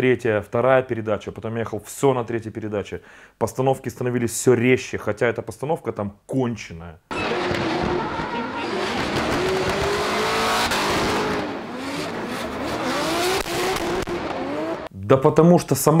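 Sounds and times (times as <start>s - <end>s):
tyre squeal and skid: 7.1s - 9.9s
car engine revving: 7.1s - 14.9s.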